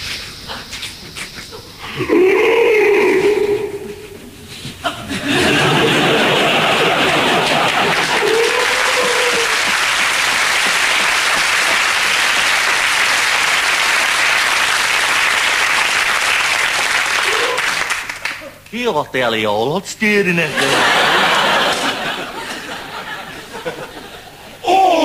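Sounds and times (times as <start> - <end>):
audience applause: 5.2 - 18.6, 20.6 - 24.1.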